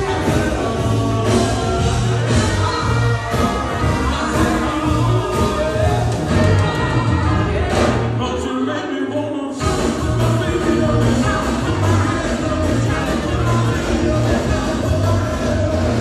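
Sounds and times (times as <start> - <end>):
drum and bass beat: 0.0 - 8.2, 9.6 - 16.0
live band playing: 0.0 - 8.4, 9.6 - 16.0
man singing into a microphone: 8.0 - 16.0.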